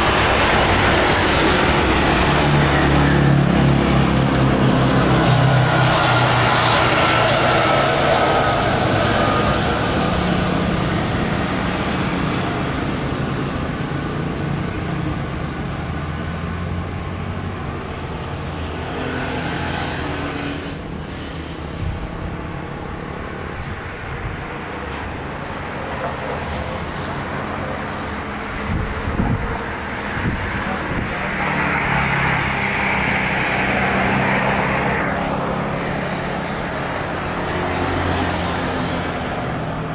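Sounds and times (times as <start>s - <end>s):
jet engine rumble: 0.0s - 16.3s.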